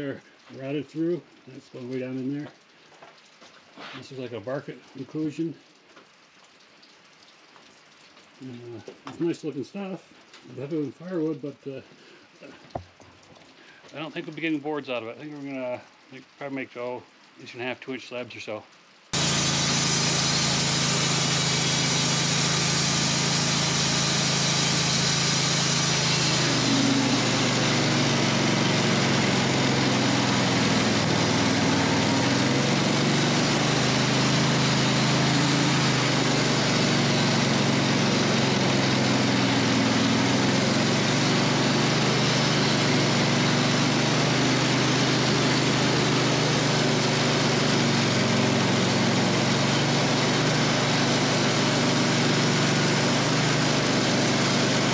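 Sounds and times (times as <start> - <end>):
sawmill engine running: 19.1 - 54.9
band blade sawing log: 19.2 - 54.9.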